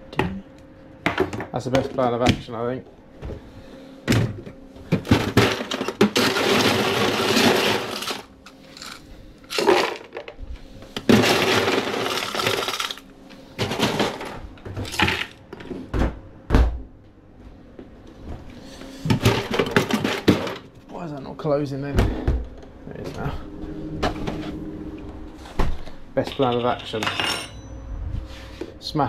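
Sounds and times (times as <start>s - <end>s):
blender crushing ice: 5.1s - 10.2s, 11.0s - 13.0s.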